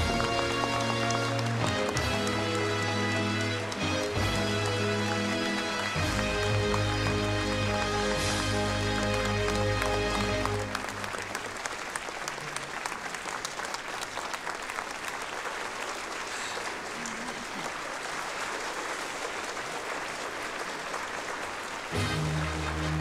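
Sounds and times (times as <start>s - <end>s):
music with sustained tones: 0.0s - 11.4s, 21.9s - 23.0s
crowd applauding: 0.0s - 23.0s.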